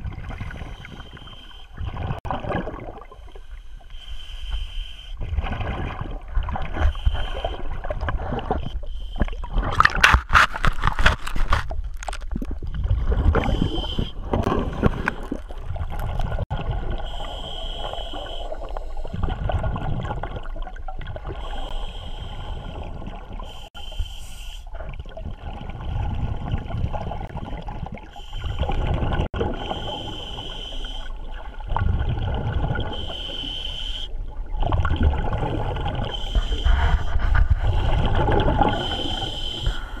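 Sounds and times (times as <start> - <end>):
scuba regulator inhale hiss: 3.3 - 5.2, 17.0 - 19.2, 21.4 - 24.7, 29.6 - 31.2, 32.9 - 34.2, 36.1 - 40.0.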